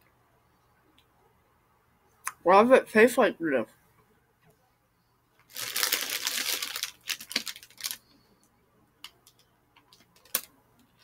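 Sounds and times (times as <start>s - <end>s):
crunching frozen grape: 5.5s - 8.0s.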